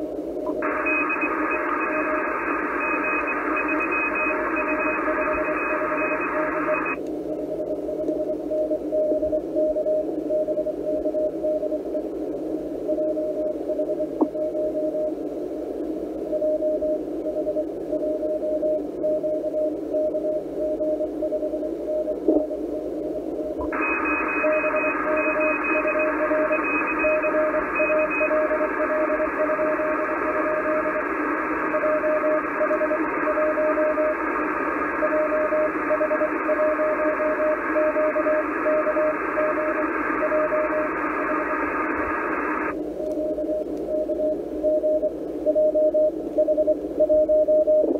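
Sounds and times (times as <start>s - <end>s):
receiver hiss: 0.0s - 47.9s
faint high-pitched morse signal: 0.4s - 12.1s, 12.8s - 15.2s, 16.2s - 47.9s
morse code tone: 0.5s - 7.0s, 23.6s - 31.0s, 31.6s - 34.2s, 35.0s - 47.9s.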